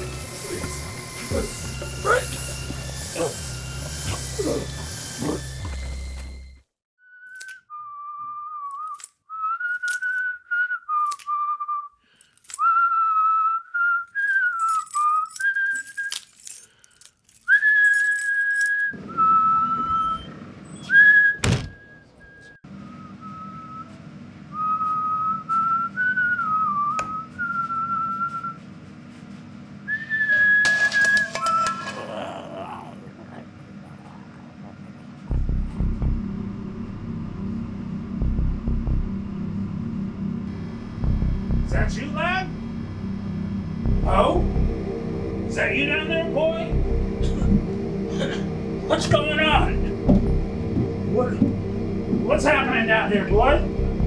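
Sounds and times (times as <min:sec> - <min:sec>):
person whistling a tune: 0:07.0 - 0:12.0, 0:12.6 - 0:16.2, 0:17.5 - 0:28.6, 0:29.9 - 0:31.8
low steady hum: 0:30.7 - 0:54.0.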